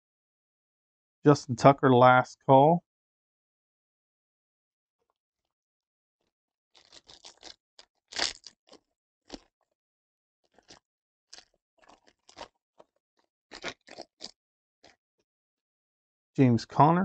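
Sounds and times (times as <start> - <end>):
foil wrapper crinkling and tearing: 6.8 - 9.5.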